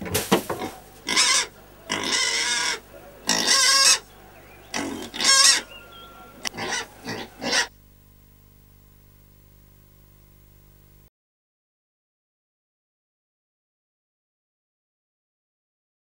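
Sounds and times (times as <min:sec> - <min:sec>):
faint steady hum: 0:00.0 - 0:11.1
piglet squealing: 0:01.0 - 0:04.1, 0:04.7 - 0:07.7.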